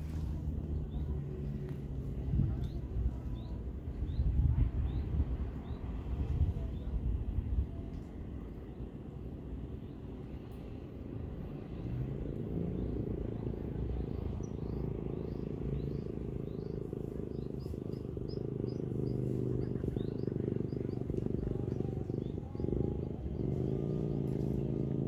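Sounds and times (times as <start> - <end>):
steady low rumble: 0.0 - 25.0
small bird chirping: 11.8 - 24.9.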